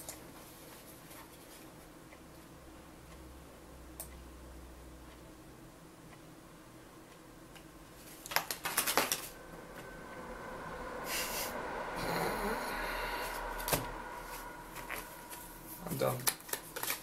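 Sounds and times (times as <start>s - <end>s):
cards clattering onto table: 8.3s - 9.3s.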